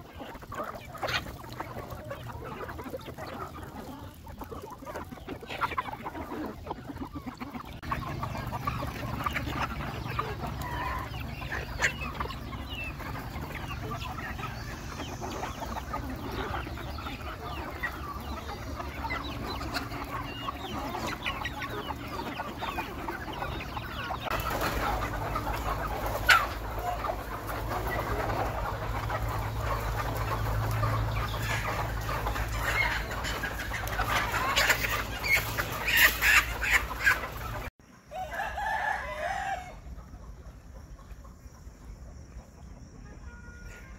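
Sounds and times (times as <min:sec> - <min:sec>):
chickens clucking: 0:00.0 - 0:43.9
roosters crowing: 0:07.8 - 0:40.0.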